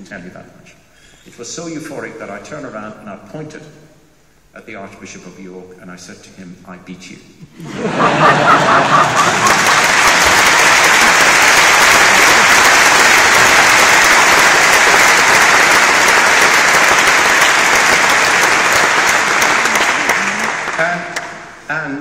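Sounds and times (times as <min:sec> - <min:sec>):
large audience applauding: 0:07.7 - 0:21.6.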